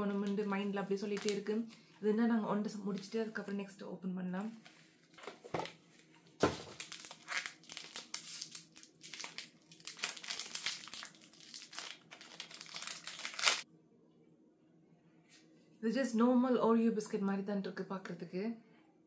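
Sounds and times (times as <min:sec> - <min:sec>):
plastic wrapper crinkling: 0:00.0 - 0:02.0, 0:04.5 - 0:13.6.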